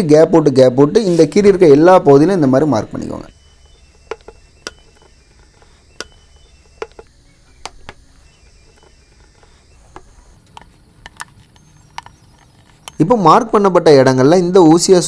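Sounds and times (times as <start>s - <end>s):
faint low hum: 1.5s - 15.0s
needle tapping plastic tank: 3.3s - 13.0s.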